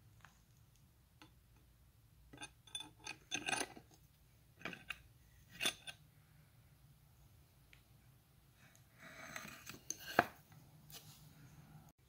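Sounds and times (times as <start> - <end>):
steel pieces clinking and rattling: 2.4 - 3.9, 4.6 - 6.0.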